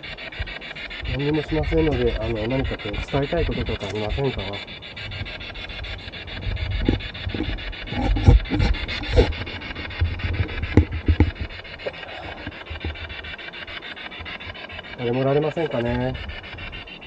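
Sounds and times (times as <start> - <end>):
chopped radio static: 0.0 - 17.0
knocks and bumps: 6.5 - 13.1.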